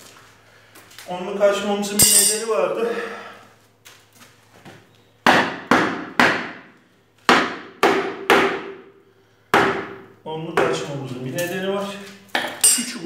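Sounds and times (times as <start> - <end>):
hammer striking wooden chair leg: 5.2 - 6.7, 7.3 - 8.9, 9.5 - 10.0.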